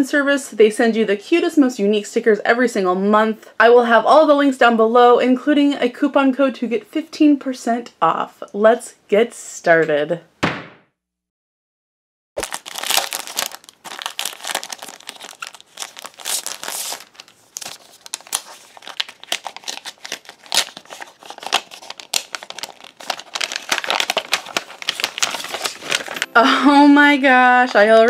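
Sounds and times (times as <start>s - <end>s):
envelope crinkling and crackling: 12.4s - 26.3s.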